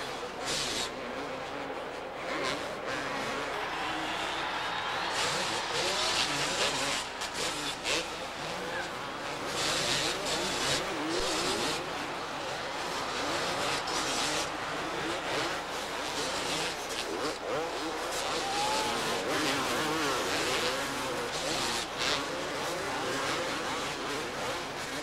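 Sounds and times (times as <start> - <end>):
motocross bikes revving: 0.0 - 25.0.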